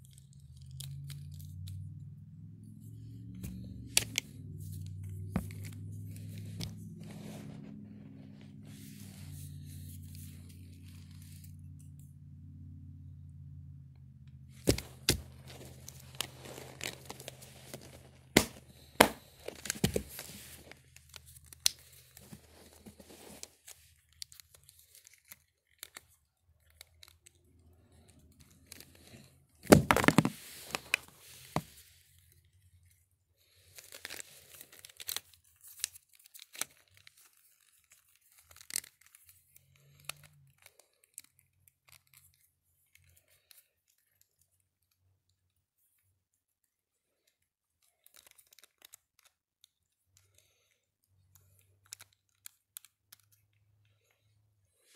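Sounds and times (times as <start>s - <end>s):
low steady hum: 0.0s - 26.1s
fingers and clothing rustling: 14.5s - 29.0s.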